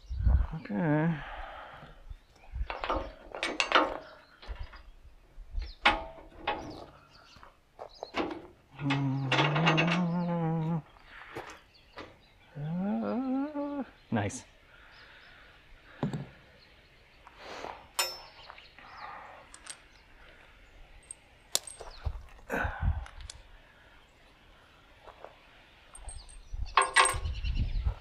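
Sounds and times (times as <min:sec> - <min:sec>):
metal clanks from hand tools: 0:05.8 - 0:06.8, 0:08.2 - 0:10.2, 0:18.0 - 0:18.4, 0:26.0 - 0:27.2
ringing metal clang: 0:18.0 - 0:18.4.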